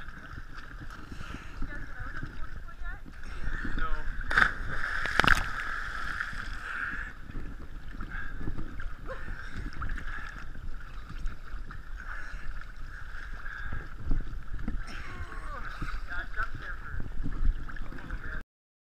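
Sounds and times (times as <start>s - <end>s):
water lapping and sloshing: 0.0s - 18.4s
person jumping into water splash: 4.2s - 6.6s.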